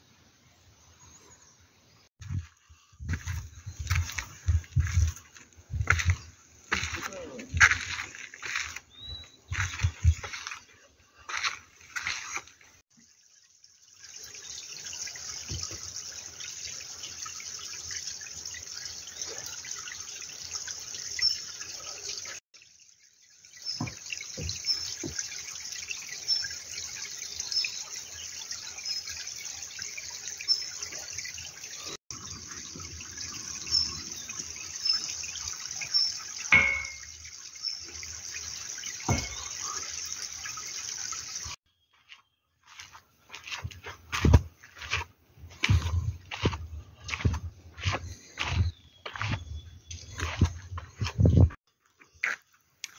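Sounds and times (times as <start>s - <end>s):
stream babbling over rocks: 29.8s - 38.1s, 38.8s - 41.2s.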